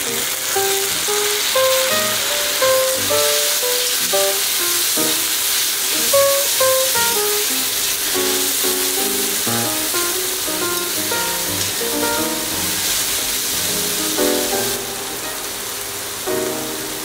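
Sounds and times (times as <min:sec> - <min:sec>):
vegetables sizzling in oil: 0:00.0 - 0:17.0
plucked-string background music: 0:08.2 - 0:15.5.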